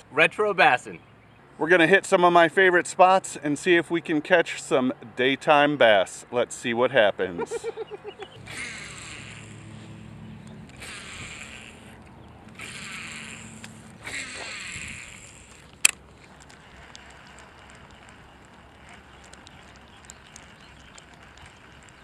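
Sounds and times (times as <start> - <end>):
faint outdoor background: 0.0 - 22.0
fishing reel cranking: 7.8 - 22.0
sharp click: 15.5 - 22.0.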